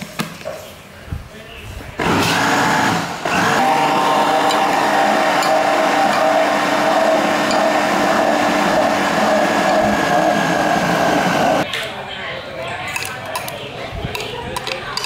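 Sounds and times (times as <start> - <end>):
blender motor whine: 2.0 - 11.6.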